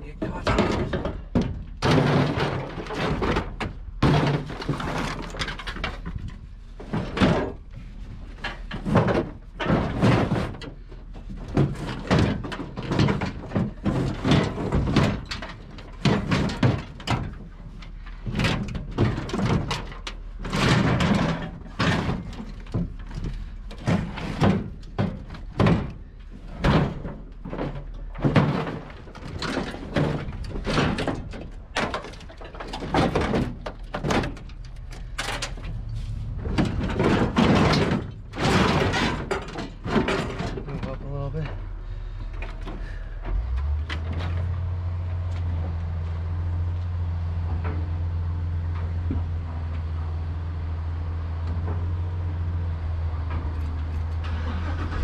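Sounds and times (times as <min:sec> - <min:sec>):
scrap metal banging and clanking: 0:00.0 - 0:46.0, 0:53.2 - 0:55.0
steady low rumble: 0:28.8 - 0:39.5.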